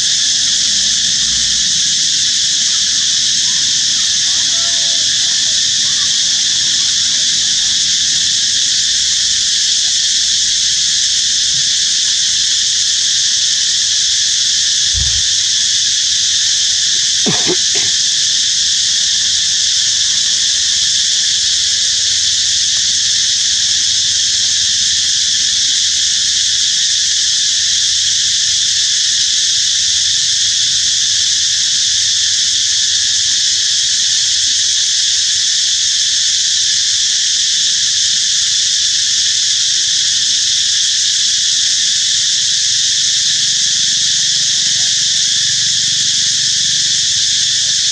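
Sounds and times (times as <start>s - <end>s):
insects chorus: 0.0s - 47.9s
low thump: 14.9s - 15.6s.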